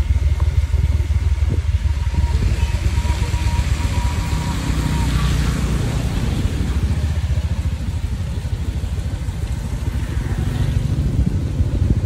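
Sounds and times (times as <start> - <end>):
motorbike engine running: 0.0 - 12.0.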